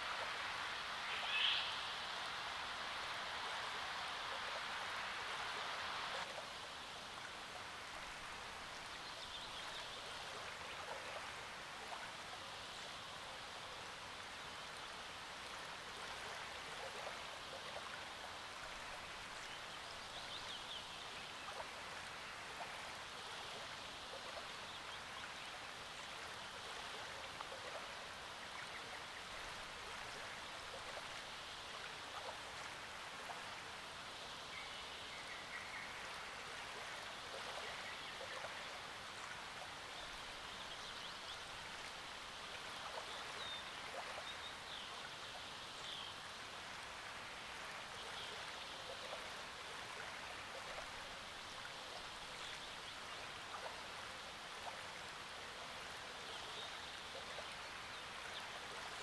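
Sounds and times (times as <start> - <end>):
small waves lapping shore: 0.0 - 59.0
faint bird chirps: 1.1 - 2.0.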